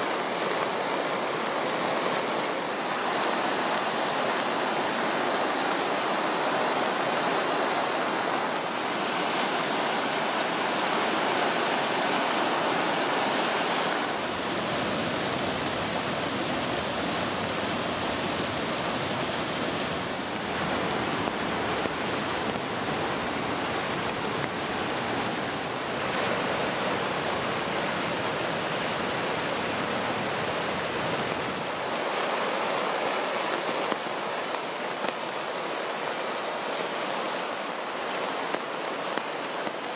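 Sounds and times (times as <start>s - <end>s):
rushing floodwater: 0.0s - 39.9s
stream running over rocks: 0.0s - 39.9s
water pouring through woods: 0.0s - 39.9s.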